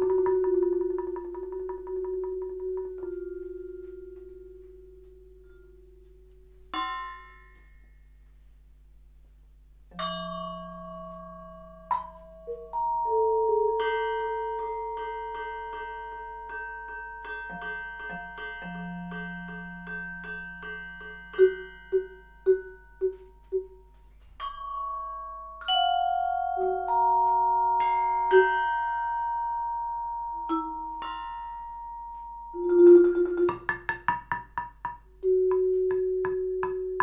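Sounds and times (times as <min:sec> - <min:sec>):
vibraphone played with mallets: 0:00.0 - 0:07.9, 0:09.9 - 0:37.0.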